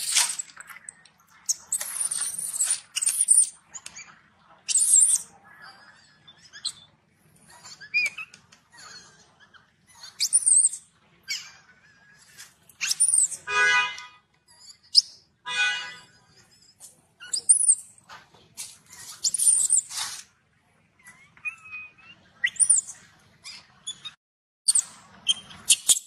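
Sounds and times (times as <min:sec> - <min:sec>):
baby monkey chirps: 0:01.4 - 0:05.3, 0:06.0 - 0:06.9, 0:07.5 - 0:08.4, 0:09.4 - 0:11.6, 0:12.8 - 0:13.5, 0:14.6 - 0:15.3, 0:16.4 - 0:17.9, 0:18.9 - 0:20.0, 0:21.1 - 0:26.0
baby monkey screaming: 0:04.7 - 0:05.3, 0:07.5 - 0:11.7, 0:12.8 - 0:13.4, 0:21.1 - 0:24.1, 0:24.7 - 0:26.0.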